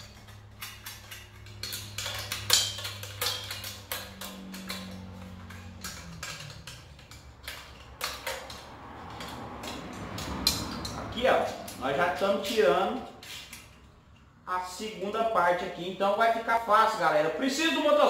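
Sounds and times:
wrench clicking on metal bolts: 0.0 - 14.4.

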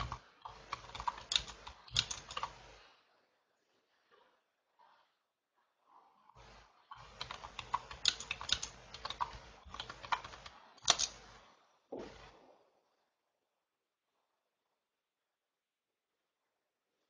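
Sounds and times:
computer keyboard typing: 0.0 - 2.6, 6.9 - 11.2.

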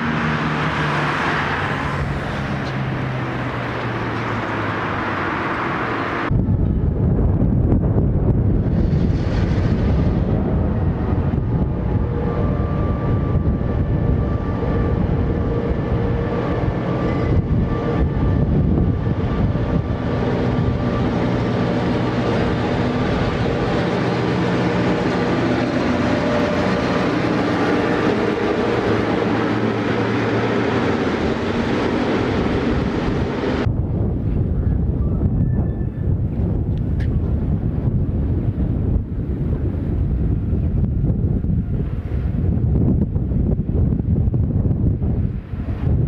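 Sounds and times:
diesel locomotive engine drone: 0.0 - 46.0
train rumbling on rails: 0.0 - 46.0.

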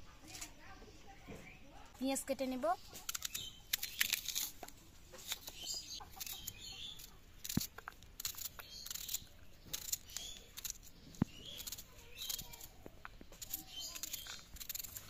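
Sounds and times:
birds chirping: 0.0 - 15.0
knife slicing onion: 3.0 - 15.0.

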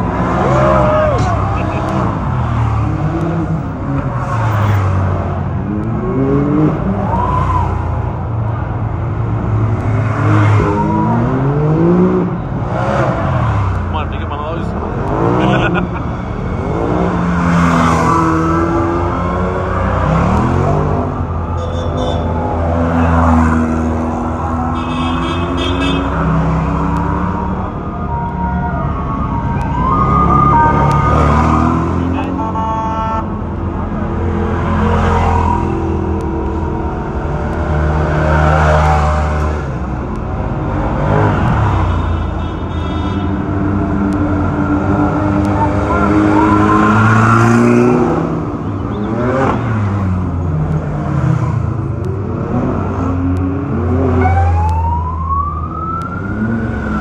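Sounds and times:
off-road vehicle engines driving past: 0.0 - 42.3
engine revving: 43.4 - 57.0.

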